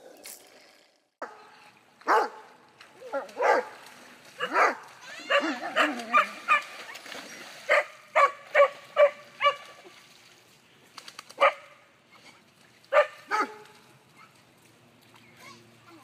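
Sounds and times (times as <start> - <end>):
dog barking and yelping: 4.4 - 6.6.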